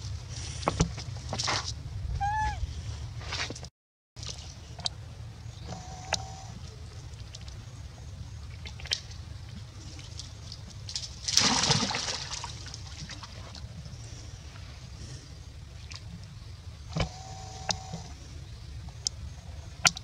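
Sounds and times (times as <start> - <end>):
low rumble: 0.0 - 3.4
water splashing: 8.4 - 13.8.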